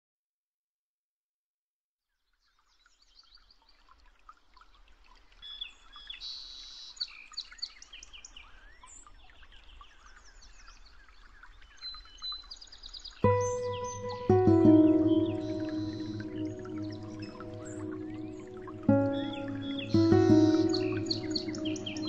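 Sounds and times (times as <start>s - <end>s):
small birds chirping: 5.4s - 22.0s.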